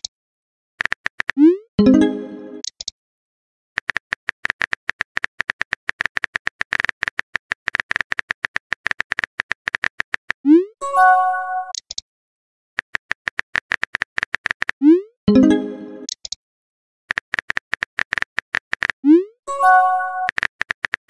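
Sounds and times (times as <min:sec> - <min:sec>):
message chime: 0:01.8 - 0:02.6, 0:10.8 - 0:11.7, 0:15.3 - 0:16.1, 0:19.5 - 0:20.3.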